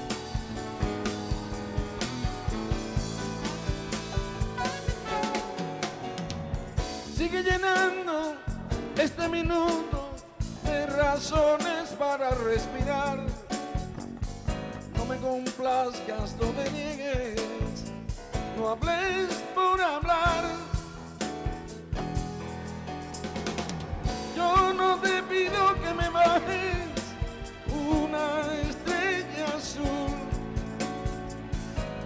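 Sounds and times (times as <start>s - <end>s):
live band with drum kit: 0.0s - 32.0s
man singing with vibrato: 7.0s - 13.6s, 14.9s - 21.2s, 24.1s - 30.9s.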